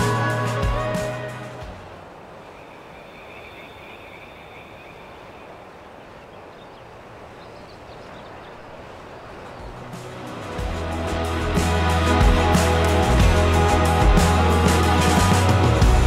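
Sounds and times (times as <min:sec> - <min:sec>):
steady background hiss: 0:00.0 - 0:12.2.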